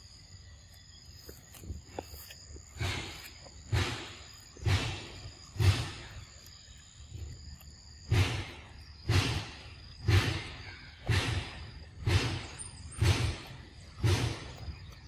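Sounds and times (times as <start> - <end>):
monkey chewing wet crunches: 0.7 - 9.4.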